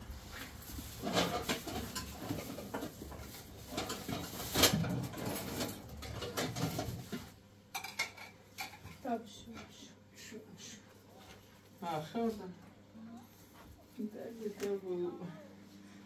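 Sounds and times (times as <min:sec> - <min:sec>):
plastic bags rustling: 0:00.1 - 0:07.4.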